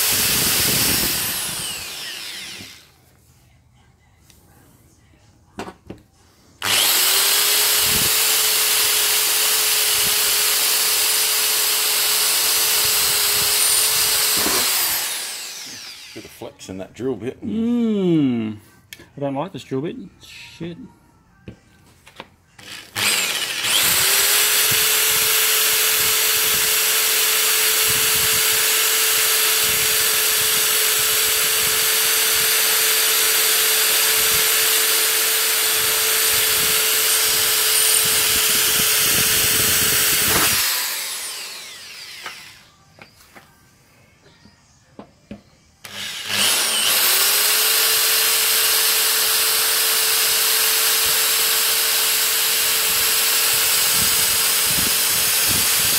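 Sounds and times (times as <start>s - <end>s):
electric drill drilling metal: 0.0s - 3.0s, 6.6s - 16.4s, 22.6s - 42.7s, 45.8s - 55.9s.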